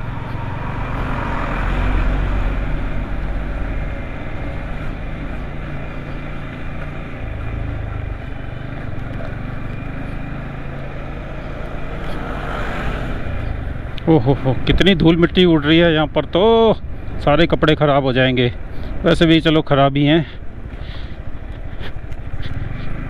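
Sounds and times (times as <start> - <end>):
motorcycle engine running: 0.0 - 17.2, 20.3 - 23.0
road and wind noise: 0.0 - 23.0.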